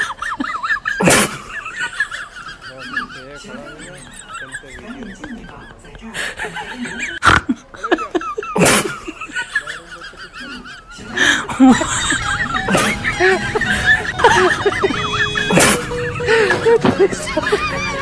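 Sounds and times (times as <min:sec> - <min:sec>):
laughter: 0:00.0 - 0:18.0
sharp sneeze-like bursts: 0:01.0 - 0:01.4, 0:08.6 - 0:09.0, 0:15.5 - 0:15.9
light music: 0:11.0 - 0:18.0.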